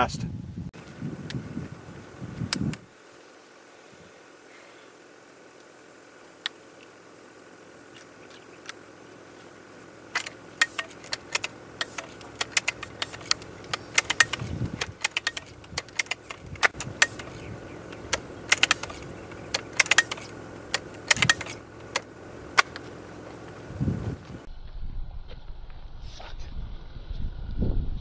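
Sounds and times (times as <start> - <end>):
air rifle metallic clicks: 10.1 - 22.8.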